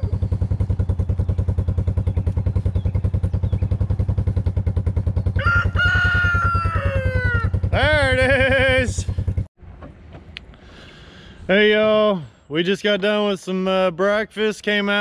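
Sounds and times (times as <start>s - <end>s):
engine idling: 0.0s - 9.5s
rooster crowing: 5.4s - 7.7s.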